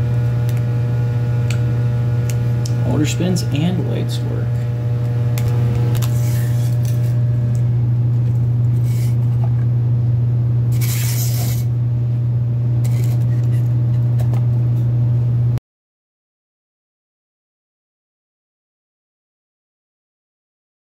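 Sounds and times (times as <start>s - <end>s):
small electric motor humming: 0.0s - 9.6s, 10.7s - 11.8s, 12.8s - 14.5s.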